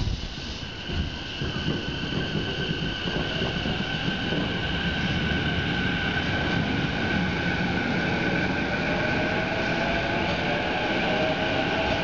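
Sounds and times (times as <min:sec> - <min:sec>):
train high whine: 0:00.0 - 0:12.0
train low rumble: 0:00.0 - 0:12.0.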